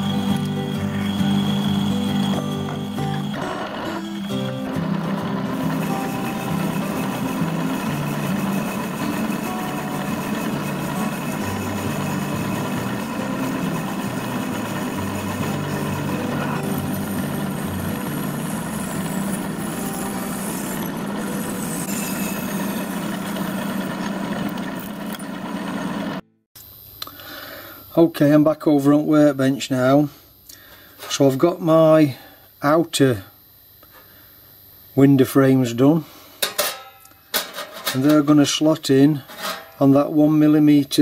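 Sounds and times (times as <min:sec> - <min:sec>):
faint high whistles: 0:00.0 - 0:04.8
metal lathe humming: 0:00.0 - 0:26.3.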